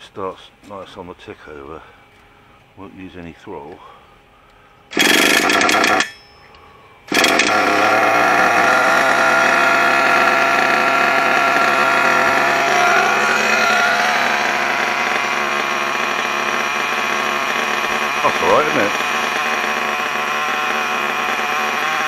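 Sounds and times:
model car engine idling: 4.9 - 6.2, 7.1 - 22.0.

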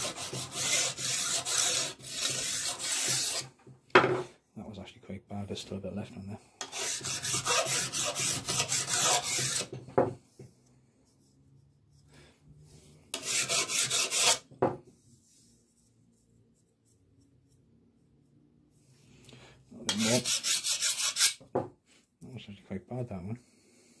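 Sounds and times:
file rasping on steel: 0.0 - 3.5, 6.6 - 9.8, 13.1 - 14.5, 19.9 - 21.4.

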